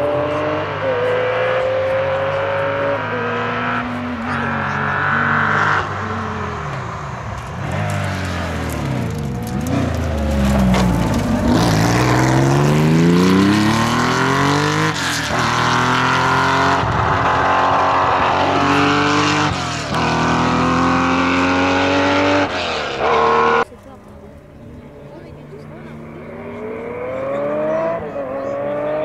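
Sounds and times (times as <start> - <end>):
car engine accelerating hard: 0.0 - 23.8, 24.6 - 29.0.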